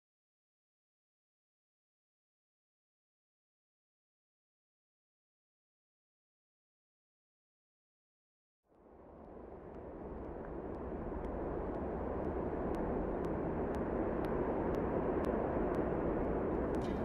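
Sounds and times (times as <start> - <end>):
steady rushing noise: 8.7 - 17.0
faint ticks: 9.2 - 17.0.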